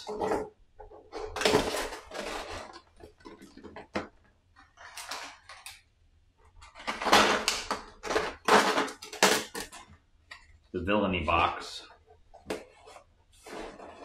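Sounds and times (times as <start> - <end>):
cardboard rustling and scraping: 0.0 - 5.6, 11.9 - 14.0.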